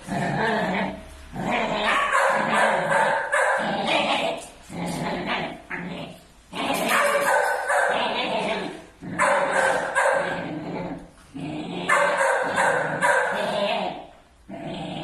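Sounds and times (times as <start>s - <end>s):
puppies growling: 0.0s - 15.0s
puppies barking: 0.6s - 4.5s, 6.6s - 10.6s, 11.8s - 14.0s.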